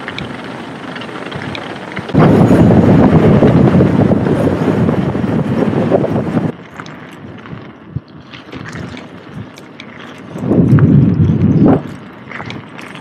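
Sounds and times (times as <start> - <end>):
loud dense rumble: 0.0 - 6.6
bike tyres rolling: 0.0 - 13.0
wind rushing: 1.2 - 6.6, 10.4 - 12.0.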